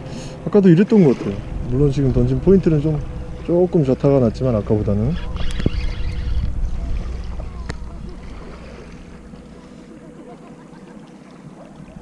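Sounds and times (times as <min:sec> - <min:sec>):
water lapping at shoreline: 0:00.0 - 0:12.0
wind rumble on microphone: 0:01.2 - 0:09.6.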